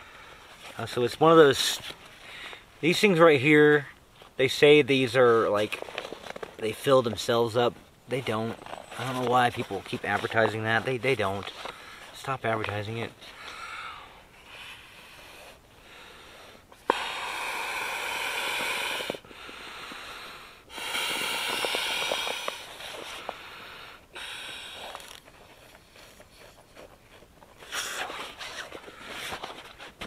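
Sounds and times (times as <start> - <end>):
person breathing: 2.2 - 2.7, 11.6 - 12.2, 13.3 - 25.2
man blowing into pillow valve: 13.4 - 25.2, 27.6 - 29.3.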